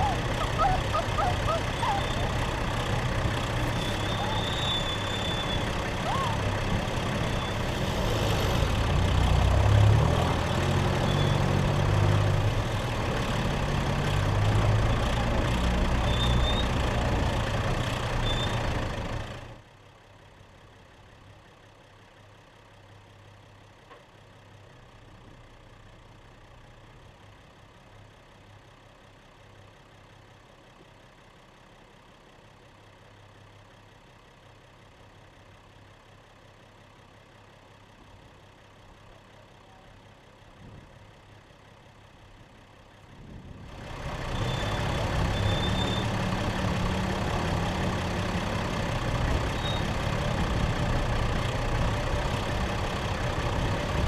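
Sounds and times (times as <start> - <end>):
engine and driving rush: 0.0 - 54.0
vehicle engine humming: 0.0 - 54.0.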